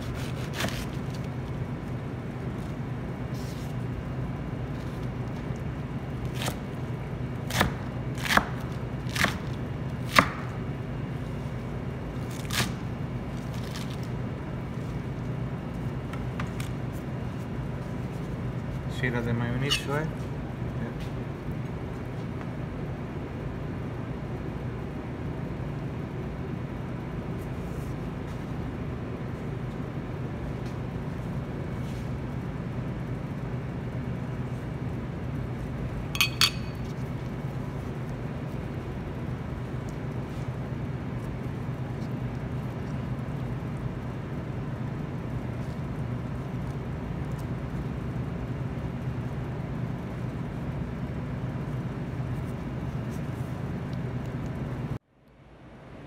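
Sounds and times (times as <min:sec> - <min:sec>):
steady low hum: 0:00.0 - 0:56.0
utensil clinking against dishware: 0:36.2 - 0:36.8.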